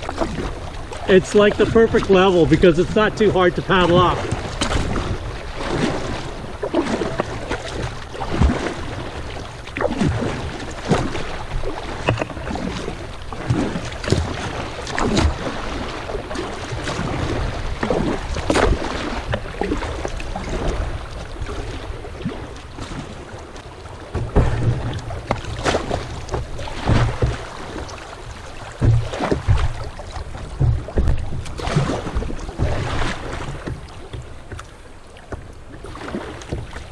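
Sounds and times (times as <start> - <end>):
paddle splashes: 0.0 - 36.9
water rushing over stones: 0.0 - 36.9
wind rumble on microphone: 28.4 - 34.6.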